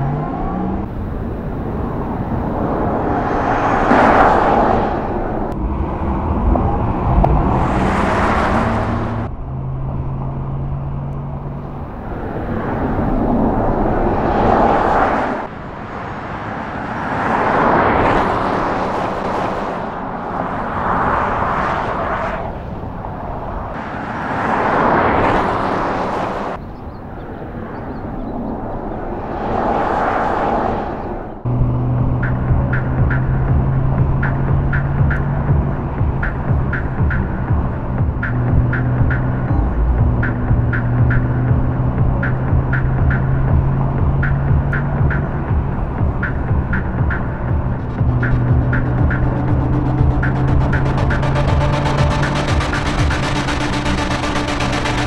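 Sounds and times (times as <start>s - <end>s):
electric car driving past: 0.0s - 36.0s.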